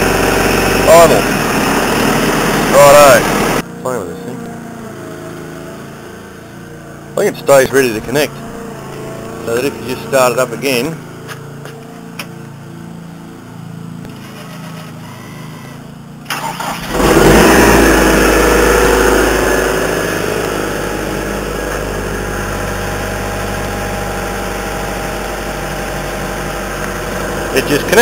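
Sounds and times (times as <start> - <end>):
engine cranking and idling: 0.0 - 3.6, 14.0 - 28.0
low steady hum: 2.6 - 15.8.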